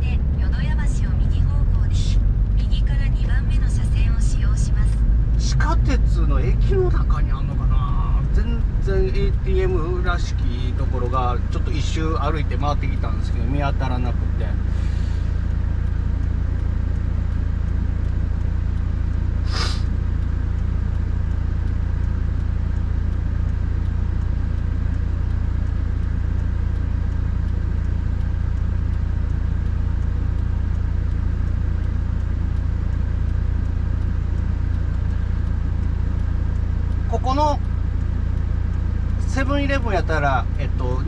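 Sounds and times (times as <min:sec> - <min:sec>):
car cabin engine and road noise: 0:00.0 - 0:41.0.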